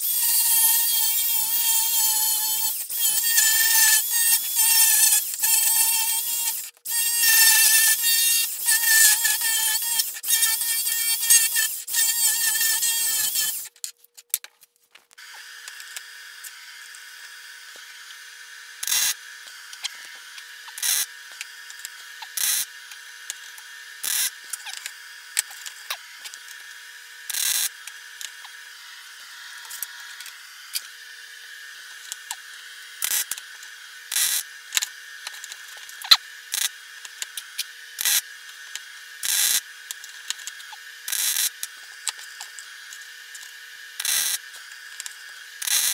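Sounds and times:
welder arc bursts: 0:00.0 - 0:13.7, 0:20.6 - 0:22.7, 0:43.9 - 0:44.4.

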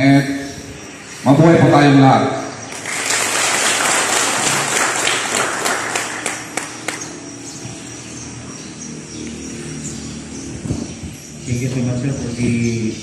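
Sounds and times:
audience applauding: 0:02.7 - 0:07.1.

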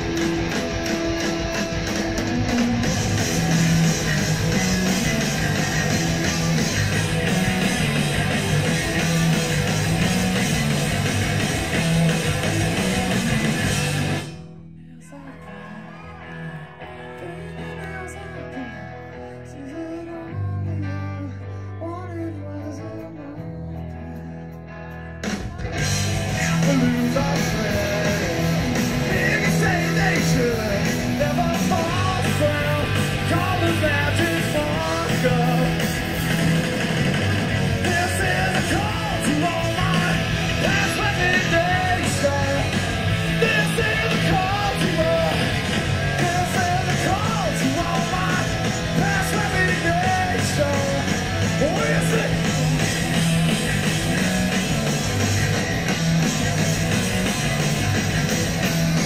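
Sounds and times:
live rock band playing: 0:00.0 - 0:14.5, 0:15.4 - 0:59.0
electric guitar playing alone: 0:00.0 - 0:21.8, 0:22.8 - 0:59.0
person singing: 0:14.6 - 0:24.5, 0:25.4 - 0:36.1, 0:37.7 - 0:52.6.

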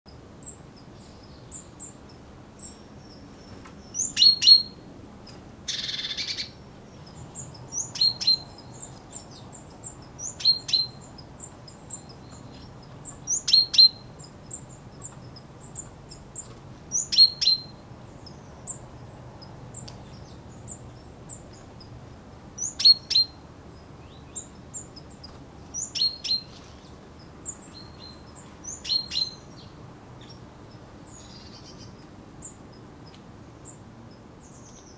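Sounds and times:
finch calls: 0:02.6 - 0:04.8, 0:05.7 - 0:18.8, 0:22.6 - 0:23.4, 0:24.1 - 0:30.4.

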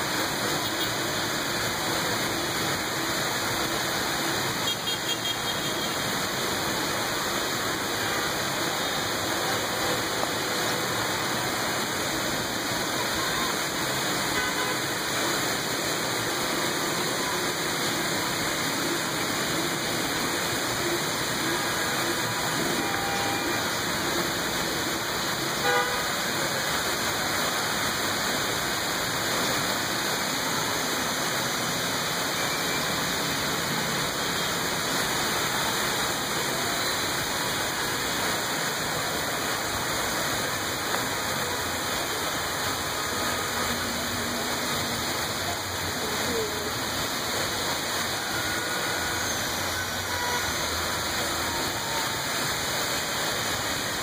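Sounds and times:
steady rain pouring: 0:00.0 - 0:54.0
street traffic: 0:00.0 - 0:54.0
car horn toots: 0:25.6 - 0:26.0.

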